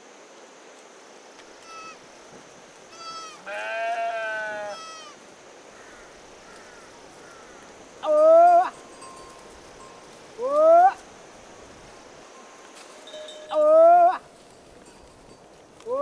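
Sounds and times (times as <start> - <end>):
livestock bleating: 2.9 - 5.2.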